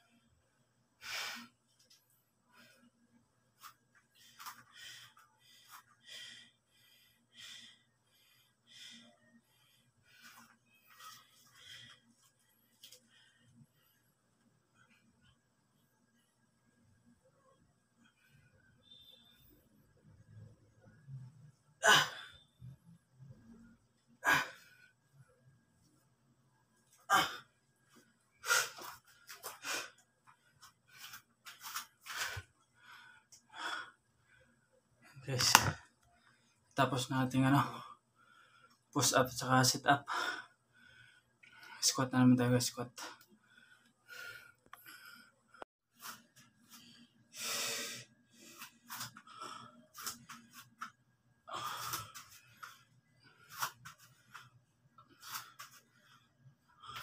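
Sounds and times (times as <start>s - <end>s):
man breathing hard: 4.2s - 13.8s.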